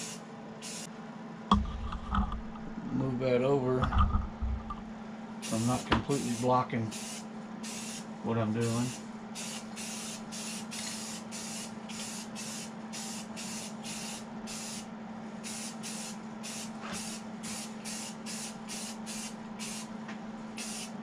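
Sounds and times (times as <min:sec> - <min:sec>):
spray can hissing bursts: 0:00.0 - 0:00.9, 0:05.4 - 0:08.0, 0:08.6 - 0:14.8, 0:15.4 - 0:19.9, 0:20.6 - 0:21.0.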